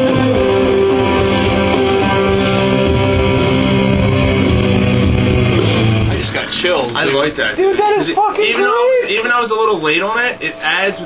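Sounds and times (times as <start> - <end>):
electric guitar rock sustained notes: 0.0 - 6.4.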